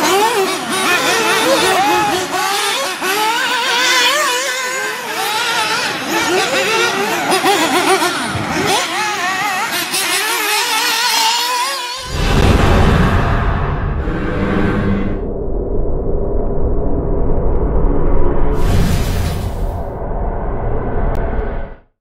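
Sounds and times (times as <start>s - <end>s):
rc car engines revving: 0.0s - 12.1s
deep whooshing outro music: 12.0s - 21.9s.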